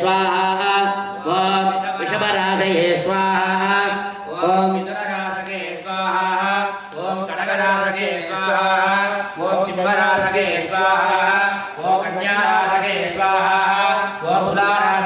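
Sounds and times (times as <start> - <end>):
man chanting: 0.0 - 15.0.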